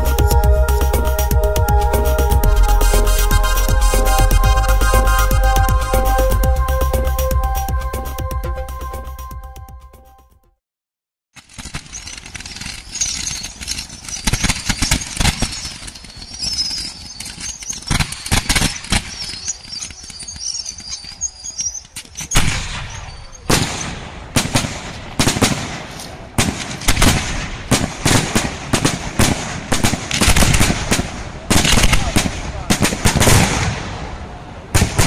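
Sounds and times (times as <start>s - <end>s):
fountain fireworks hissing: 0.0s - 5.7s
firework bangs: 11.5s - 35.0s
firework whistles: 11.8s - 24.0s.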